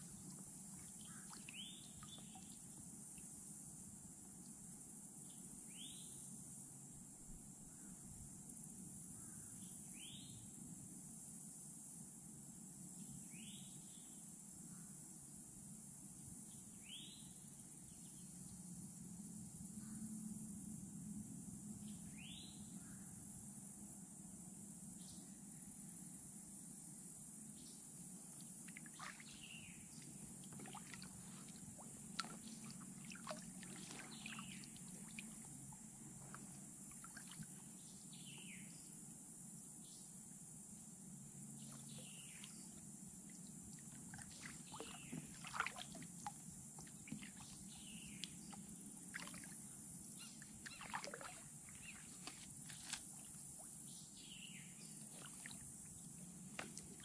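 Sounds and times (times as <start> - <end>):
faint steady hiss: 0.0 - 57.0
small splashes: 0.1 - 2.6, 28.6 - 37.7, 43.2 - 53.9, 55.0 - 57.0
water dripping off paddle: 30.0 - 37.6, 44.0 - 47.6, 50.6 - 53.7.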